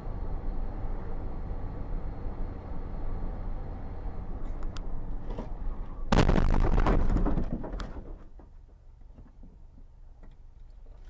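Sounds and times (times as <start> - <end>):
low road rumble: 0.0 - 11.0
car crash: 6.1 - 8.2.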